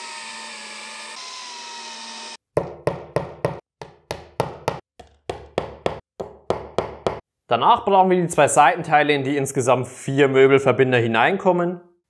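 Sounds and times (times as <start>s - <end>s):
cordless drill whining: 0.0s - 2.4s
hammer tapping dowels into wood: 2.6s - 7.2s.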